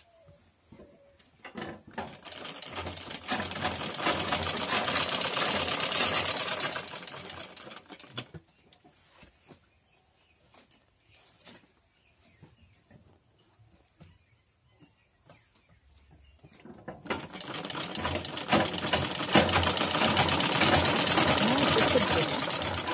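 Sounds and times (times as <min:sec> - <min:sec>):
sewing machine stitching: 0:01.6 - 0:08.4, 0:17.0 - 0:22.9.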